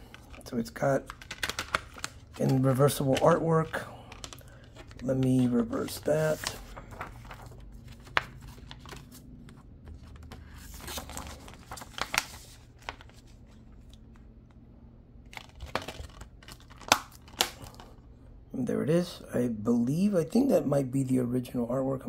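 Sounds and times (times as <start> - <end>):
paper rustling and scraping: 0.0 - 14.0.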